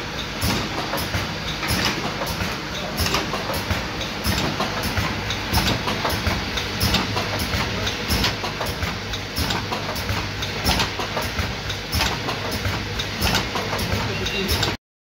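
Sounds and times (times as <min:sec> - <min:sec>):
machine humming: 0:00.0 - 0:14.8.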